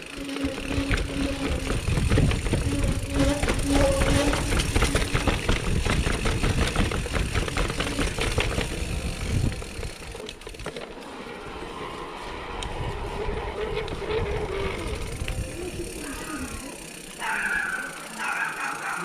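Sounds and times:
bike clattering over stone steps: 0.3s - 11.0s.

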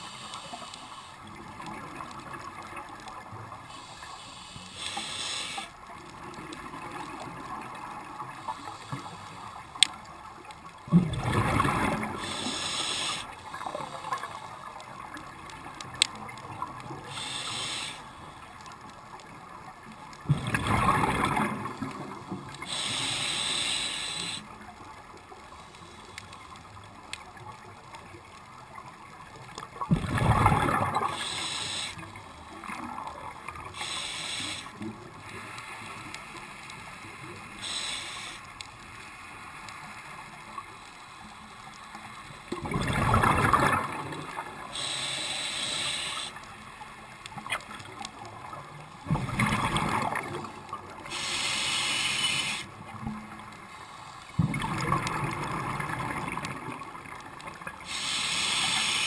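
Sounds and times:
regulator breathing hiss: 0.0s - 1.5s, 3.6s - 5.9s, 8.5s - 9.9s, 12.0s - 14.7s, 16.8s - 18.6s, 22.5s - 24.6s, 25.5s - 26.5s, 30.9s - 32.2s, 33.6s - 39.6s, 44.6s - 46.5s, 51.0s - 52.8s, 57.8s - 59.0s
exhaled air bubbling: 10.9s - 14.3s, 20.2s - 24.5s, 29.8s - 35.2s, 42.5s - 46.4s.

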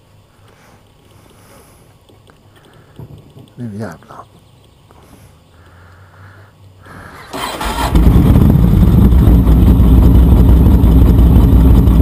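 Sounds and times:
motorcycle engine starting and idling: 7.1s - 12.0s.

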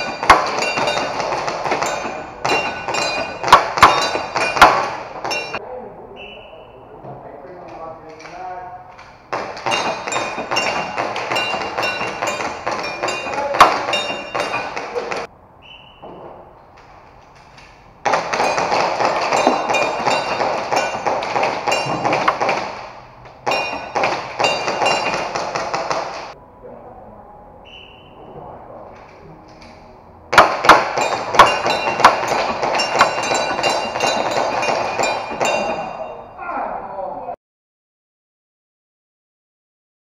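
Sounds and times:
pellets pinging off metal targets: 0.0s - 5.6s, 9.3s - 15.3s, 18.0s - 26.4s, 30.3s - 36.3s
people talking: 5.6s - 8.9s, 13.0s - 15.3s, 26.4s - 29.7s, 35.6s - 37.4s.

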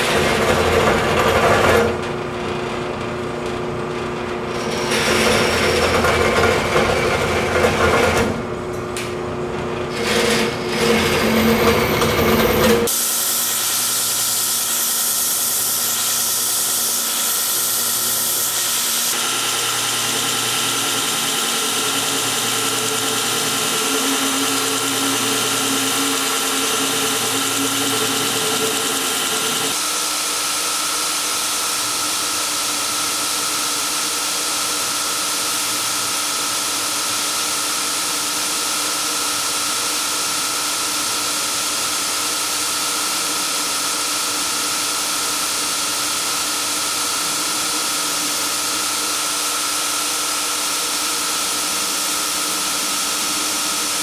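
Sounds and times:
belt grinder whirring hiss: 12.7s - 54.0s.

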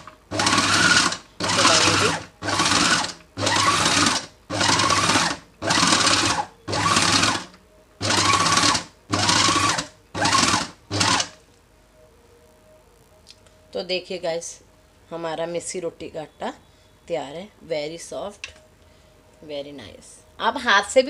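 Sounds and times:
food processor pulsing: 0.0s - 11.3s.

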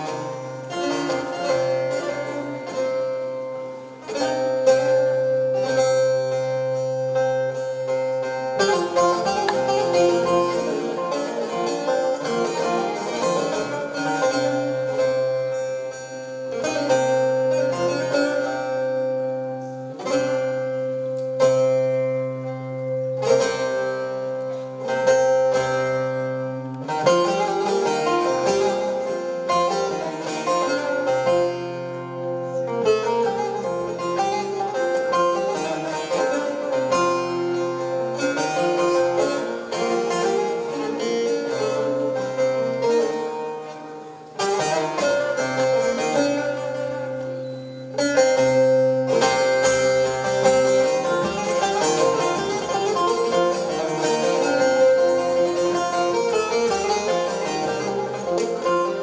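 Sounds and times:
plucked long-necked lute melody: 0.0s - 59.0s.

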